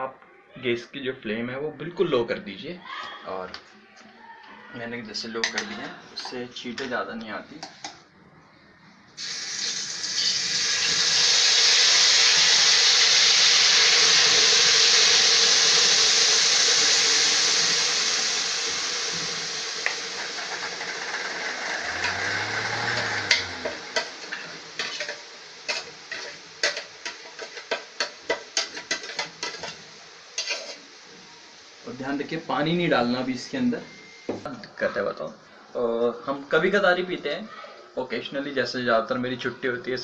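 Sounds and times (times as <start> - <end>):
paste sizzling in hot oil: 9.2 - 34.3.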